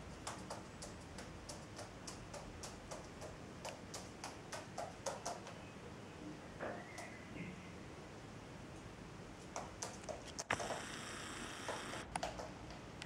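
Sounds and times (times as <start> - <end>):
pigeon claws clicking on floor: 0.0 - 5.6, 9.4 - 10.8.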